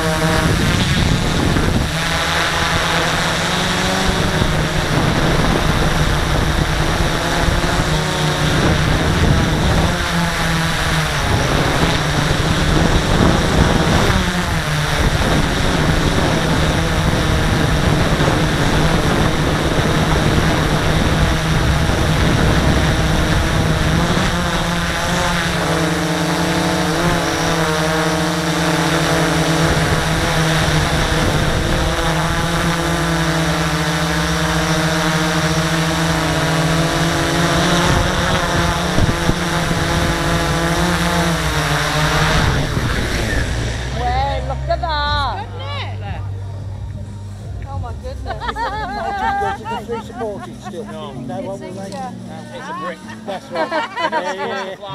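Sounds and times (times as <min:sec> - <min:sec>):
drone motors and propellers whirring: 0:00.0 - 0:54.9.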